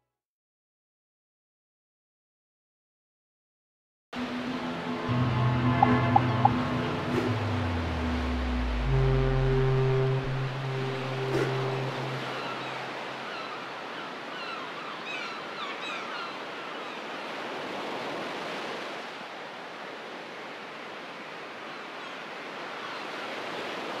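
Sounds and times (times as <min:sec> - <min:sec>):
ship's deep horn: 0:04.2 - 0:14.0
sea waves: 0:04.2 - 0:24.0.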